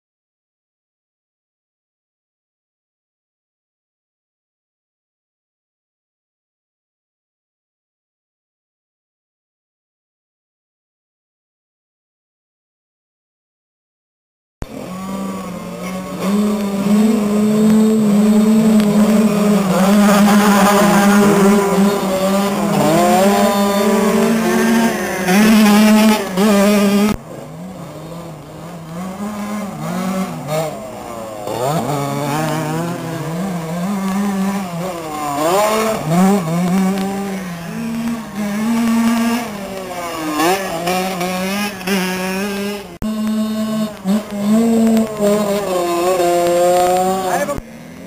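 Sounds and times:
motocross bike engines racing: 0:14.6 - 0:48.0.

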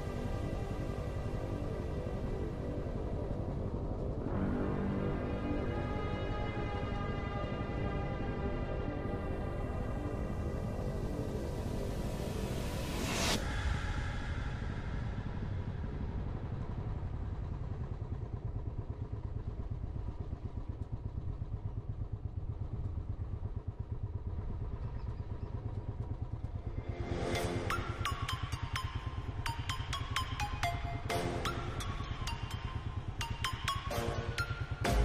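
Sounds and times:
motorcycle engine running: 0:15.3 - 0:35.0
electronic music with sharp beats: 0:27.3 - 0:35.0.

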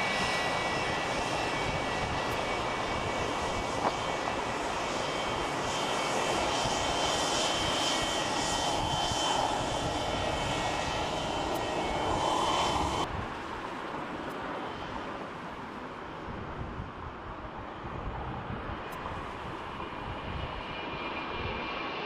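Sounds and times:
jet engines whining: 0:00.0 - 0:13.1.

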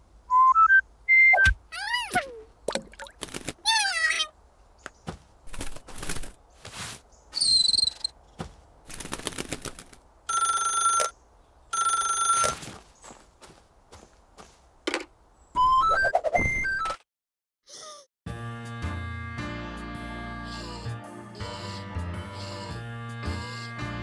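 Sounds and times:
cartoon telephone ringing: 0:10.3 - 0:11.1, 0:11.8 - 0:12.6.

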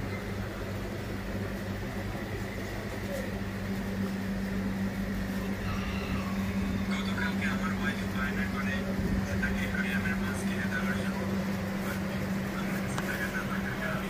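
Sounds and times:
aquarium pumps humming: 0:00.0 - 0:14.0.

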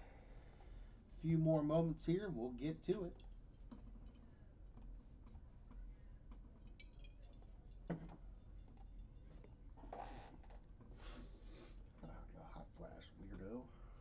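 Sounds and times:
faint clicks and ticks: 0:00.4 - 0:00.9, 0:02.9 - 0:09.6.

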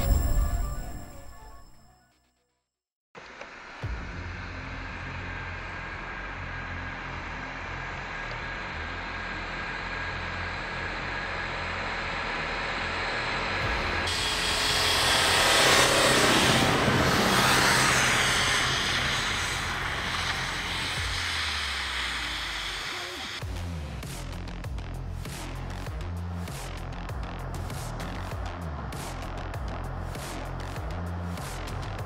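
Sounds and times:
truck engine running: 0:03.8 - 0:32.0
tyres churning through snow: 0:04.2 - 0:23.4.

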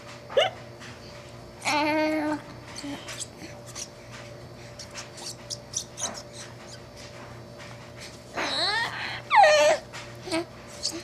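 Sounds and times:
rubber squeaky ball squeaking: 0:04.8 - 0:06.8, 0:10.8 - 0:11.0.

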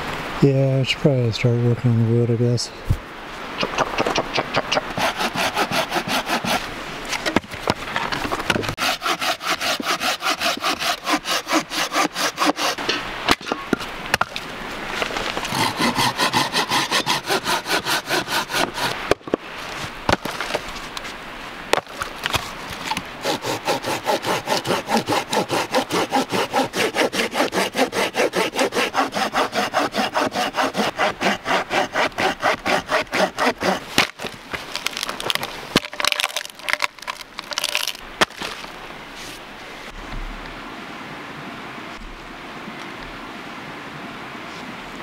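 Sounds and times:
hand saw cutting wood: 0:04.1 - 0:06.7, 0:08.7 - 0:12.9, 0:15.2 - 0:19.3, 0:22.2 - 0:38.5.

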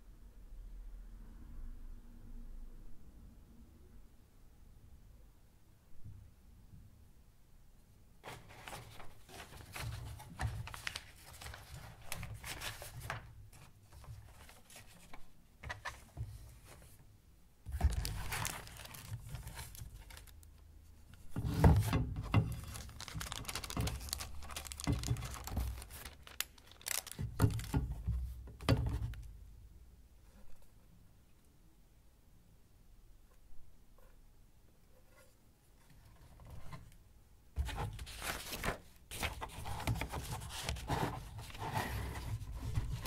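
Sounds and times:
paper sleeves rustling and crinkling: 0:08.2 - 0:17.0, 0:17.7 - 0:28.2, 0:37.6 - 0:43.0.

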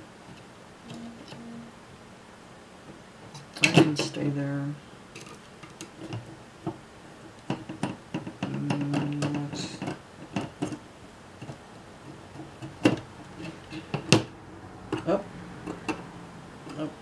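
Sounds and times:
low steady tone: 0:00.8 - 0:01.9.

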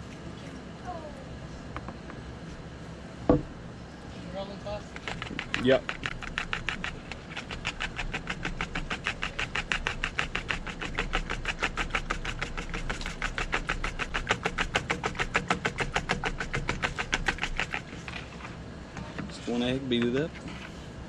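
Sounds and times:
fork beating egg in bowl: 0:04.9 - 0:18.4.

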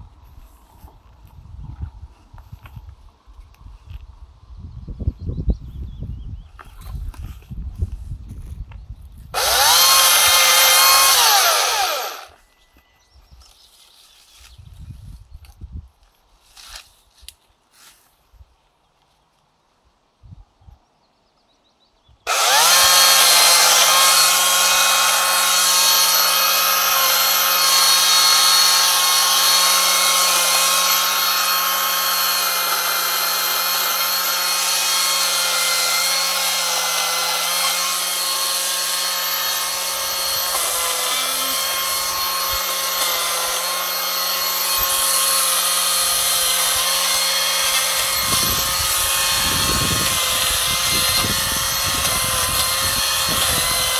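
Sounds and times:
chainsaw cutting branches: 0:09.4 - 0:12.4, 0:22.3 - 0:53.9.

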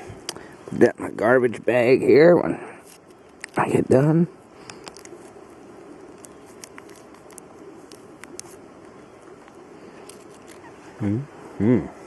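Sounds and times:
light rustling: 0:04.5 - 0:11.0.

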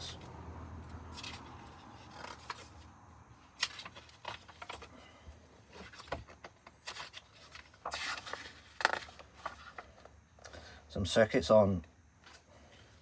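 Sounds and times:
book pages turning: 0:01.0 - 0:02.9, 0:03.5 - 0:05.1, 0:05.7 - 0:10.1.

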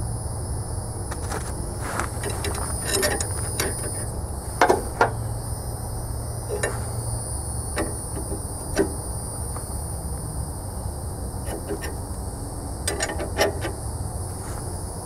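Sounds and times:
metallic knocks and clicks: 0:02.1 - 0:05.2, 0:06.5 - 0:06.9, 0:07.8 - 0:09.0, 0:11.4 - 0:12.0, 0:12.9 - 0:13.8.

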